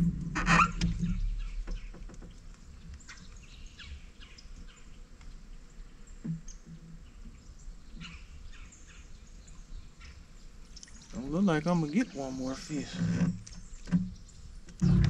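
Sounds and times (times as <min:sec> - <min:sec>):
low thump: 0:00.0 - 0:02.1.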